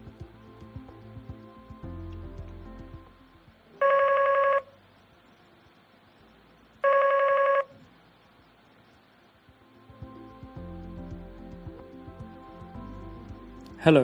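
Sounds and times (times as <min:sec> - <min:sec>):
desk phone ringing: 0:03.8 - 0:04.7, 0:06.8 - 0:07.7.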